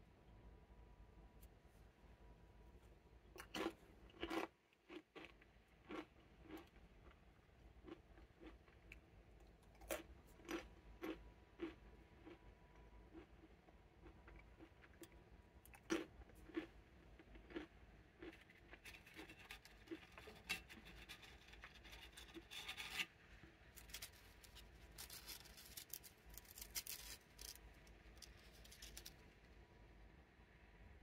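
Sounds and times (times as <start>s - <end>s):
crisps scraping together: 23.7s - 29.2s
crisps clicking: 23.8s - 29.2s.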